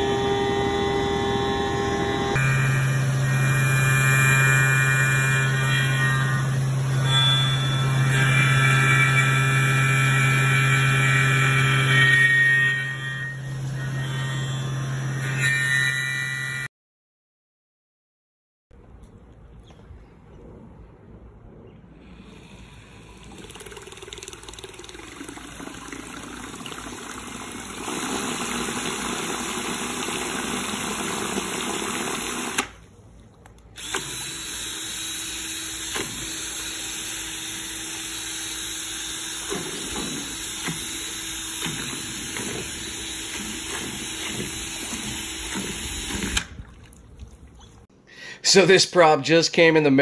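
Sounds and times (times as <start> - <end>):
drill motor whining: 0.0 - 16.7, 27.3 - 32.8, 33.8 - 46.5
propeller churning water: 22.6 - 33.6, 39.7 - 47.9.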